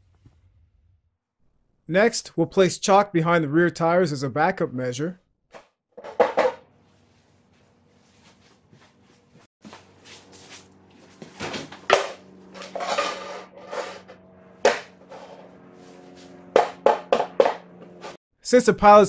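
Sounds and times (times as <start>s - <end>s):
plastic chocks scraping on concrete: 12.6s - 14.2s.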